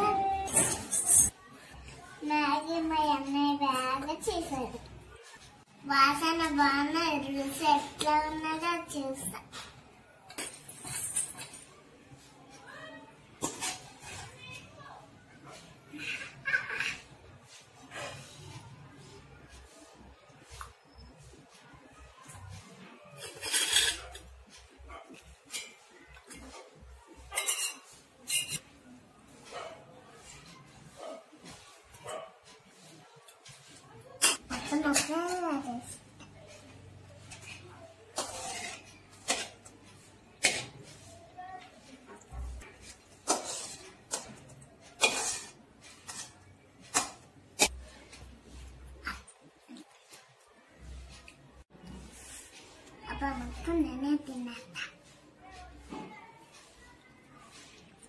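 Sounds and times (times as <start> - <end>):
metal spoon scraping steel pan: 23.2 - 24.7, 25.5 - 28.7, 32.8 - 41.2, 42.5 - 49.3.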